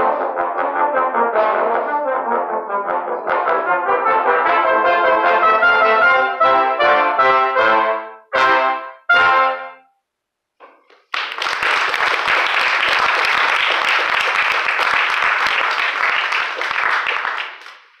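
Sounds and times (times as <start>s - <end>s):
brass ensemble chord: 0.0s - 9.9s
small audience applauding: 10.8s - 18.0s.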